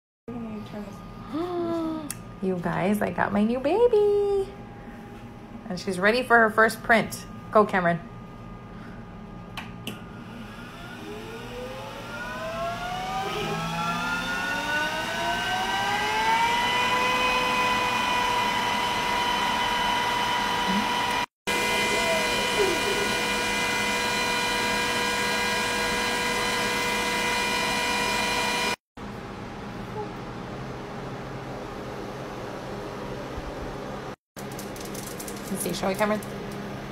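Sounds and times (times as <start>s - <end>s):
laser cutter fans whining: 4.6s - 34.1s.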